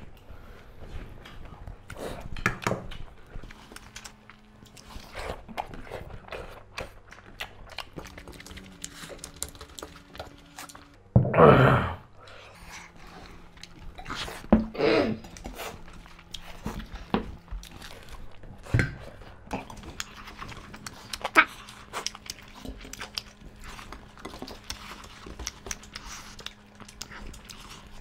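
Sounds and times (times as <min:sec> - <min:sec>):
chewing and mouth noises: 0:00.1 - 0:11.0, 0:12.2 - 0:28.0
breathing: 0:00.2 - 0:01.2, 0:12.1 - 0:13.4.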